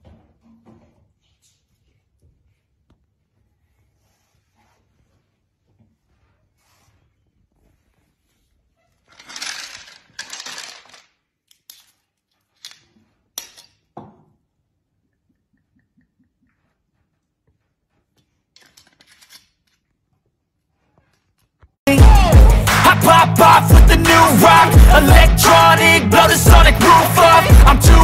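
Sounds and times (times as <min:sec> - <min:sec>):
faint rustling and scraping: 0:00.0 - 0:10.1.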